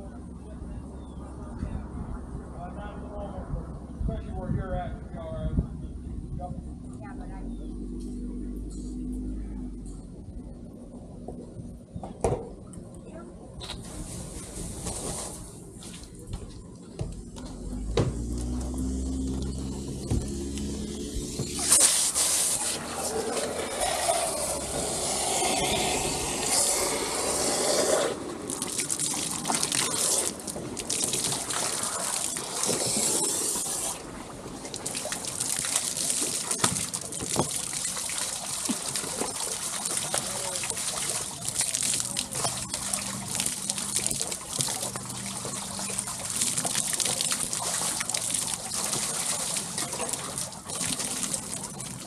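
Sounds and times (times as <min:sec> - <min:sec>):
water trickling and gushing: 0:17.4 - 0:52.0.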